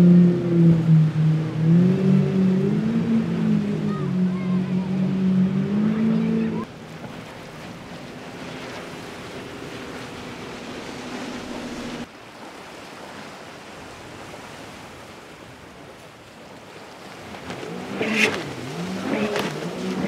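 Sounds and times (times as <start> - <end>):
water washing: 0.0 - 12.1, 17.0 - 20.0
motorboat engine hum: 0.0 - 20.0
wind: 0.0 - 20.0.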